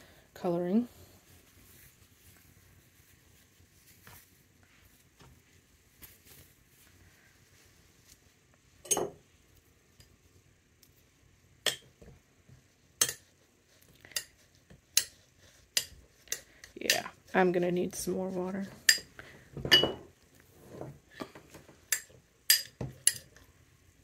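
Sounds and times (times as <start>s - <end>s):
fabric handling: 1.2s - 8.4s
glass jar clinks and knocks: 8.9s - 9.2s, 19.6s - 20.1s.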